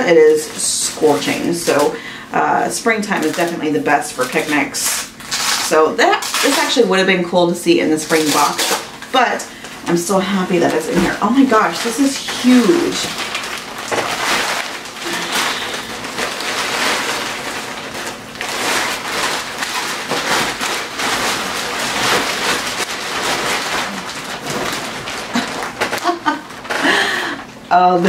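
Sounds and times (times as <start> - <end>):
picnic blanket rustling: 10.5 - 26.7.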